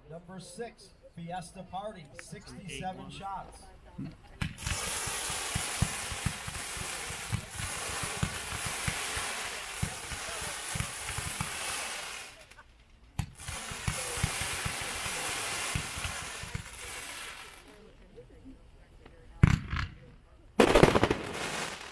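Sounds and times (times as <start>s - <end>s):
firework launch thumps: 4.4s - 11.6s, 13.2s - 16.7s
hiss of rising firework comets: 4.5s - 12.6s, 13.2s - 17.8s, 20.6s - 21.9s.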